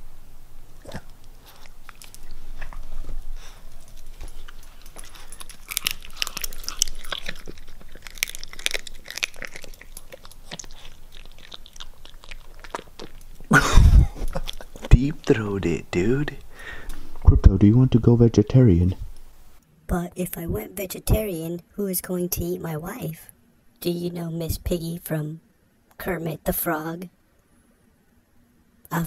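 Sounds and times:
dog crunching bones: 0:00.8 - 0:13.5.

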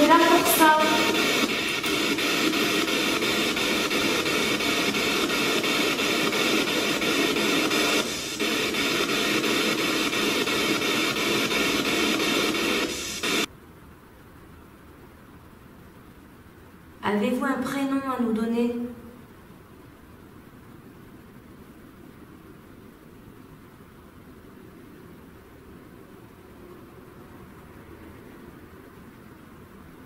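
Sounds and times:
radio static hiss: 0:00.0 - 0:13.5.

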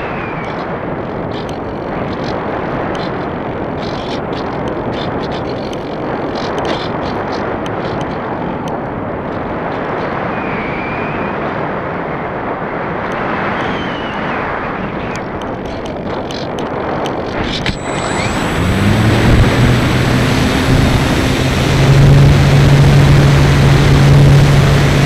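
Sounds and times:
wind buffeting on microphone: 0:00.0 - 0:25.0
rush of airflow: 0:17.3 - 0:25.0.

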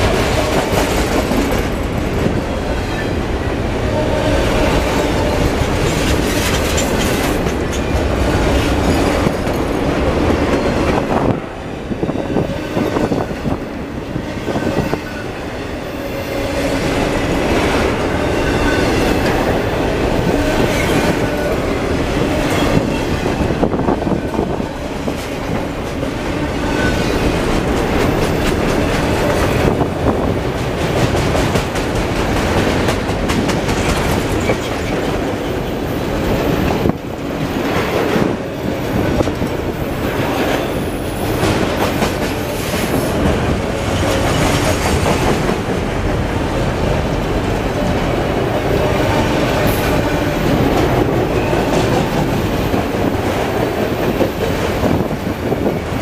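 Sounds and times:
train wheels rumbling on rail: 0:00.0 - 0:56.0
wheels clicking over rail joints: 0:05.1 - 0:10.7.

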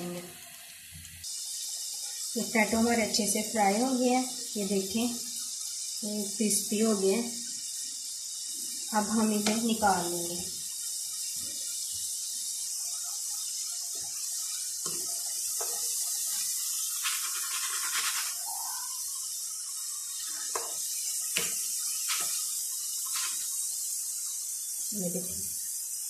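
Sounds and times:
oil sizzling: 0:00.0 - 0:26.0
utensils clicking against pan: 0:20.3 - 0:23.5.

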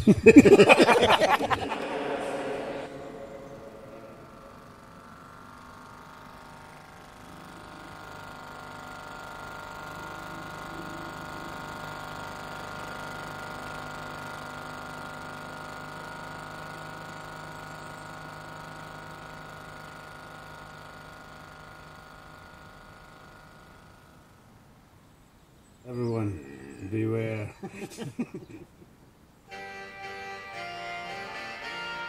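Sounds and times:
small outboard motor running: 0:00.5 - 0:28.4, 0:29.4 - 0:32.0.

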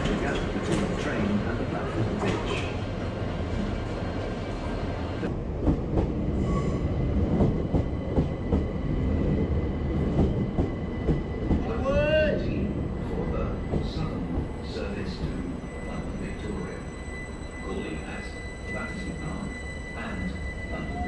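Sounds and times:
train wheels rumbling on track: 0:00.0 - 0:17.2.

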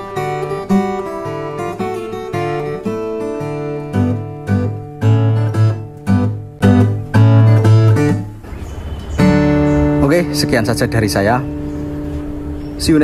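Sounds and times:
strummed acoustic guitar: 0:00.0 - 0:12.8.

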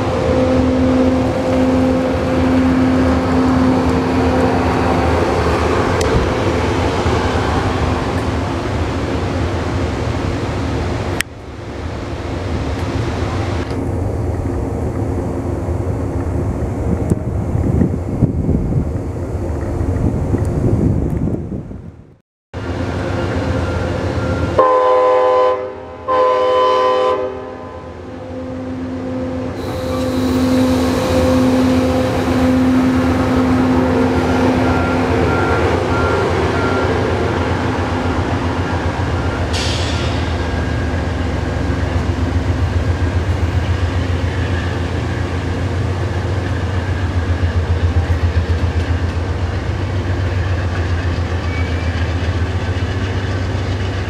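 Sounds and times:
diesel locomotive engine running: 0:00.0 - 0:21.8, 0:28.1 - 0:54.0
passenger cars rumbling on rails: 0:00.0 - 0:54.0
locomotive horn blasts: 0:23.2 - 0:37.9.

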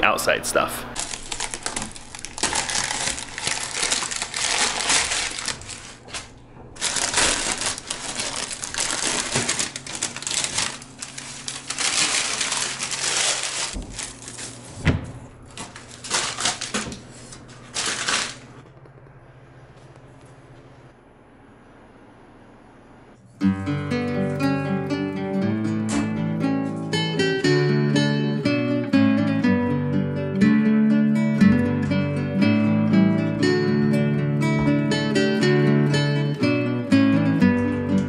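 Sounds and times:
paper and tape tearing and crumpling: 0:01.0 - 0:14.8, 0:15.5 - 0:18.6.

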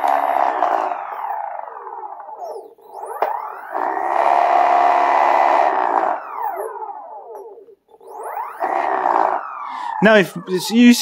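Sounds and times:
electric motors whining: 0:00.0 - 0:11.0.

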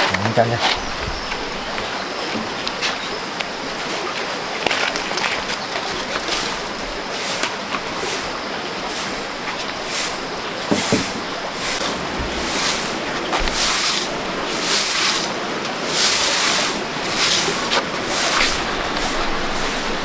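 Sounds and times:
broom sweeping ground: 0:05.8 - 0:20.0.

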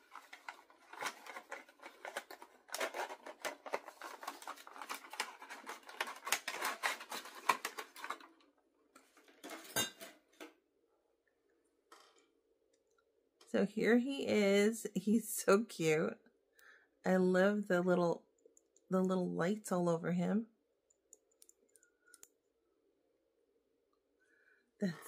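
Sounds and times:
packaging crackling and clicking: 0:00.0 - 0:08.5.

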